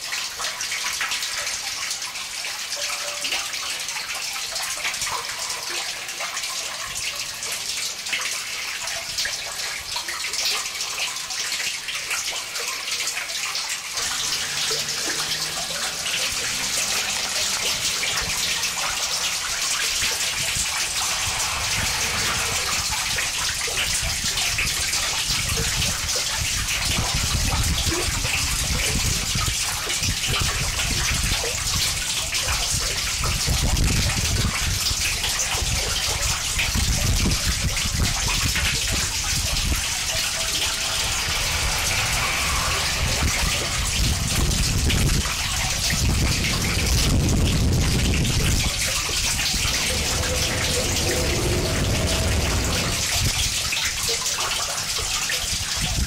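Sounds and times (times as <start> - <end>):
hissing static noise music: 13.9 - 24.4, 39.1 - 45.2, 46.0 - 53.7
low rumble: 13.9 - 25.0, 37.8 - 54.2.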